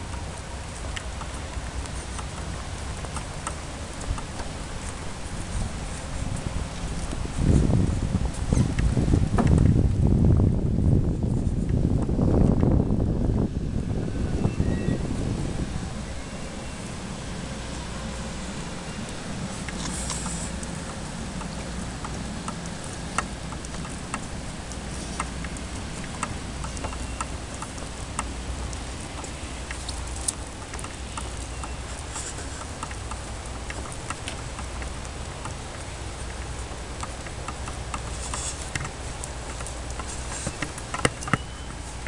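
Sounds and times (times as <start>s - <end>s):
footsteps on wooden deck: 0.0s - 12.7s
low outdoor rumble: 0.0s - 42.0s.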